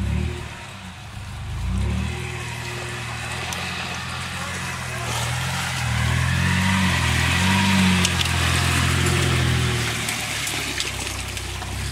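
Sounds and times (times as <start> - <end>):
engine revving under load: 0.0 - 11.9
tyres churning mud: 0.0 - 11.9.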